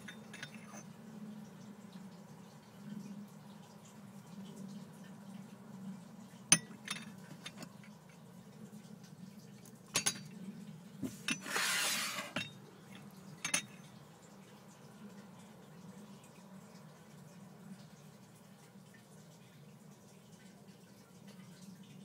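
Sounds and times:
low steady hum: 0.0s - 11.5s, 12.1s - 22.0s
cup clinking against saucer: 6.5s - 7.7s, 10.0s - 10.3s, 13.4s - 13.8s.

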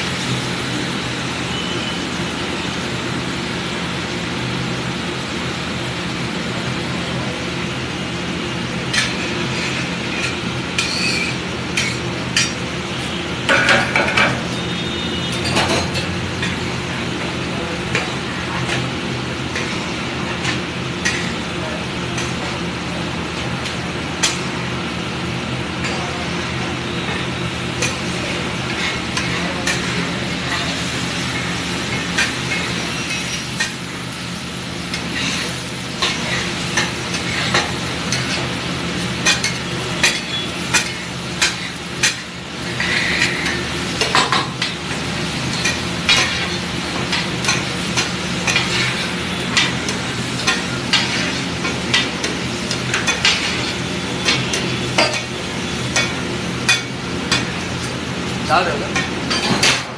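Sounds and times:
food sizzling: 0.0s - 59.9s
metal spatula scraping on griddle: 8.9s - 12.5s, 34.9s - 38.5s, 39.2s - 44.7s, 45.5s - 55.3s.

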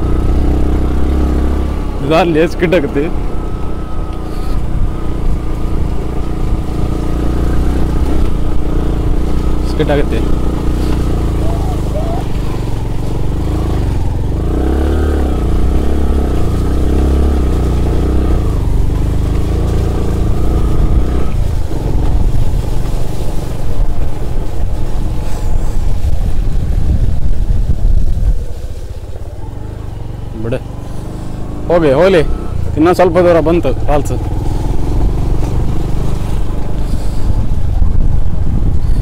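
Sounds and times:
motorcycle engine running: 0.0s - 39.0s.

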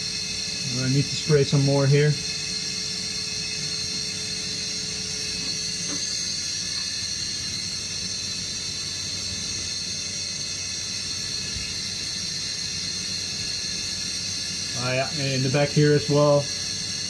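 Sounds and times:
steady hiss: 4.8s - 17.0s.

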